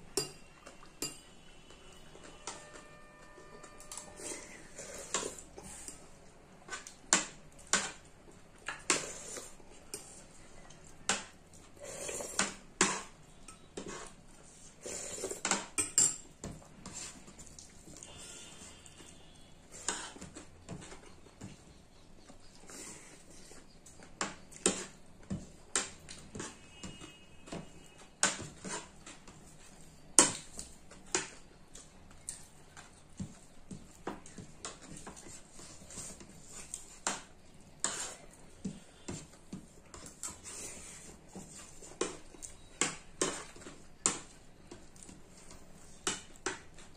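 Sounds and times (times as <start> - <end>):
spoons clinking on plates: 0.1 - 1.4, 15.4 - 16.3
spoon scraping on plate: 2.1 - 6.0, 12.0 - 16.2, 37.8 - 38.4
slurping from a spoon: 4.1 - 6.0, 11.8 - 13.0.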